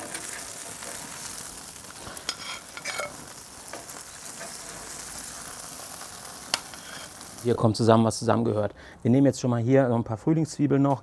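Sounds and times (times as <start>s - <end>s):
food sizzling on a grill: 0.0s - 7.9s.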